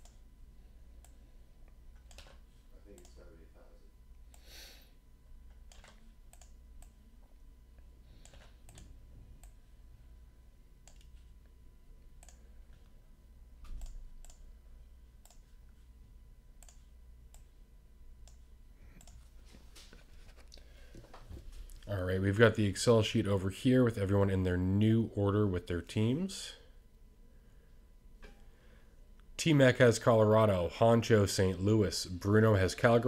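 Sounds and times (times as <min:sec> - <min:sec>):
low room hum: 0:00.0 - 0:33.0
mouse and keyboard clicks: 0:02.0 - 0:02.4, 0:05.6 - 0:07.0.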